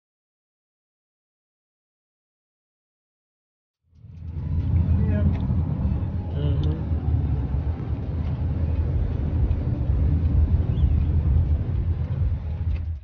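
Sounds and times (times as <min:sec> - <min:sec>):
road and engine drone in car: 0:03.9 - 0:13.0.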